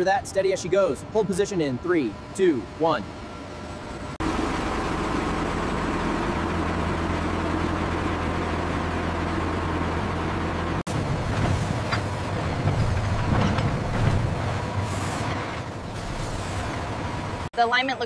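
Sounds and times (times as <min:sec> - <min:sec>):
tow tractor engine humming: 0:00.0 - 0:18.0
vehicle rolling rumble: 0:03.6 - 0:17.5.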